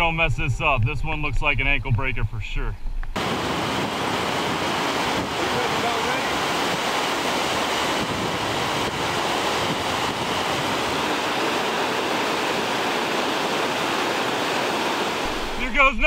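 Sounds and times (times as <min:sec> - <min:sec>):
whitewater rushing over boulders: 0:03.2 - 0:16.0.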